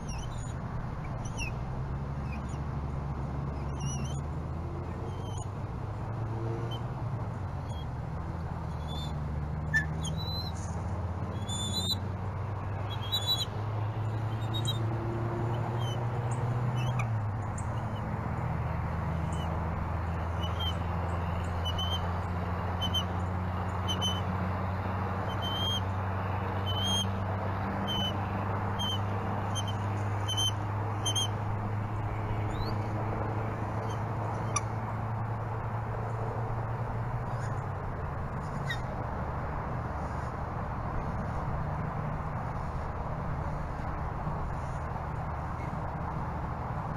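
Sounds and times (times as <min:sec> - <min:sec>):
high-pitched peeping calls: 0:09.8 - 0:12.0, 0:12.8 - 0:14.8, 0:20.3 - 0:20.8, 0:21.5 - 0:22.1, 0:22.8 - 0:23.2, 0:23.8 - 0:24.3, 0:25.3 - 0:25.9, 0:26.6 - 0:27.2, 0:27.8 - 0:31.4.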